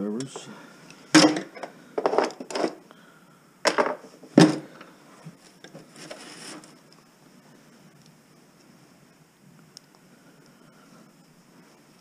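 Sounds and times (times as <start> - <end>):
faint rustling: 4.0 - 12.0.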